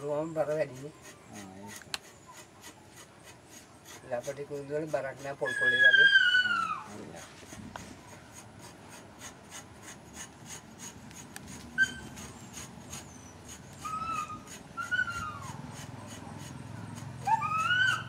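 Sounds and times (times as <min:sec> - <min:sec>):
rod rasping on branch: 0:00.0 - 0:18.0
animal whining calls: 0:05.4 - 0:07.2, 0:10.8 - 0:18.0.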